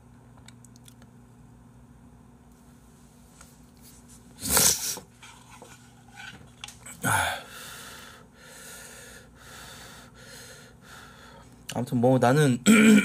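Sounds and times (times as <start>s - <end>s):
slurping noodles: 4.4s - 5.0s
breathy bursts: 7.0s - 11.5s.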